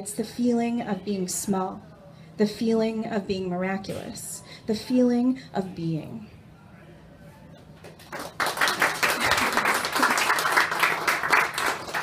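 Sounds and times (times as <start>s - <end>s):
audience applauding: 7.9s - 12.0s.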